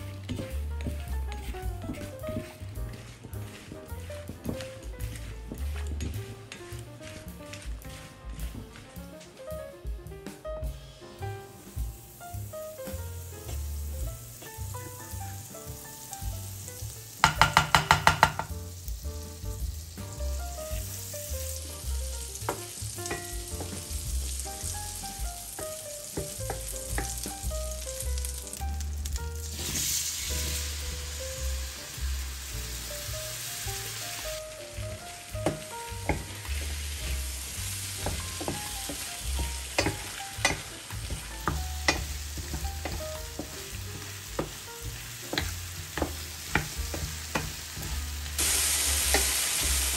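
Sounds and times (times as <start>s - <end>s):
faint instrumental music: 0.0s - 49.9s
utensil stirring and scraping: 35.4s - 47.5s.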